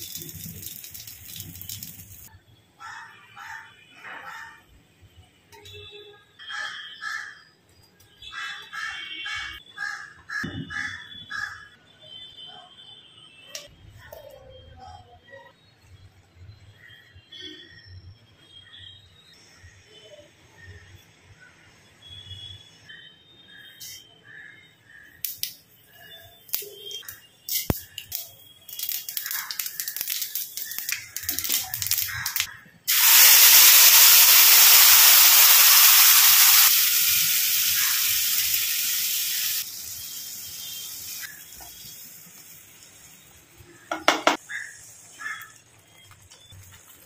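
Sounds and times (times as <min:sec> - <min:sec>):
paste sizzling in hot oil: 0:00.0 - 0:02.3, 0:27.5 - 0:47.0
seeds crackling in hot oil: 0:00.0 - 0:02.3, 0:25.2 - 0:47.0.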